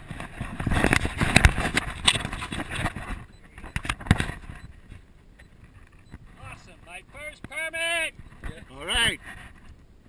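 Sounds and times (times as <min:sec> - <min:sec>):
camera handling against microphone: 0:00.1 - 0:04.6.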